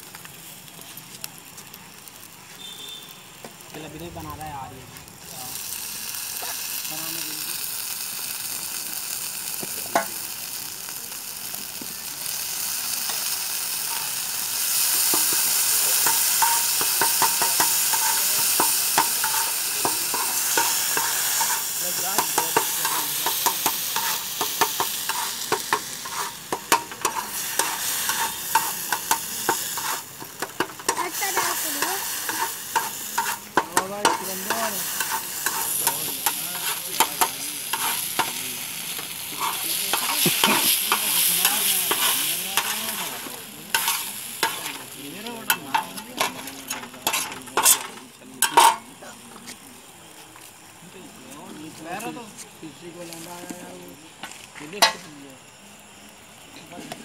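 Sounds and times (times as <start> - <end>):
food sizzling on metal griddle: 0.0 - 57.0
spatula scraping griddle: 13.8 - 48.9
spatula clinking on metal: 15.1 - 31.5.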